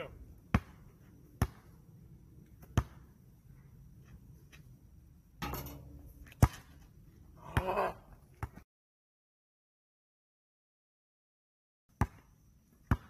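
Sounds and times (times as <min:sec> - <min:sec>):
basketball bouncing on asphalt: 0:00.3 - 0:03.4, 0:05.4 - 0:07.0, 0:07.6 - 0:08.7, 0:11.9 - 0:13.0.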